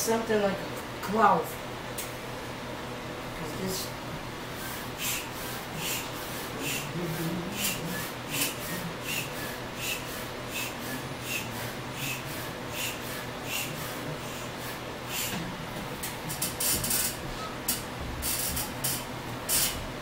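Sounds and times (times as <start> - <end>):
foot pump puffing air: 4.5 - 19.9.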